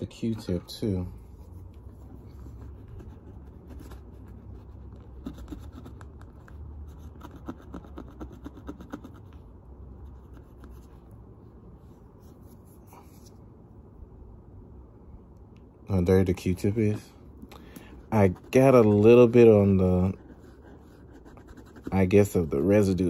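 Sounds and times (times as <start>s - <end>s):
cotton swab scratchy rubbing: 1.2s - 9.5s, 18.1s - 22.9s.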